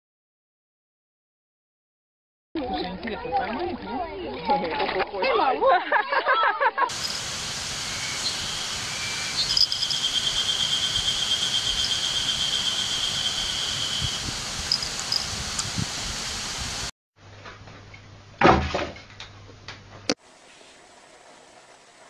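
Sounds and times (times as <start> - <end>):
insect trilling: 6.9 - 15.4
steady hiss: 6.9 - 16.9
short high chirps: 7.9 - 15.3.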